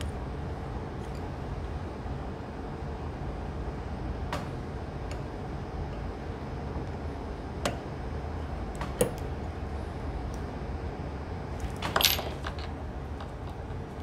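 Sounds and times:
low background hum: 0.0 - 14.0.

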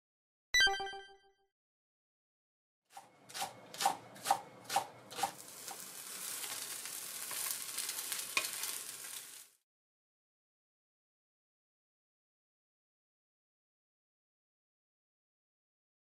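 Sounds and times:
metal turner scraping a pan: 3.0 - 9.4
pancake sizzling in oil: 5.1 - 9.6.

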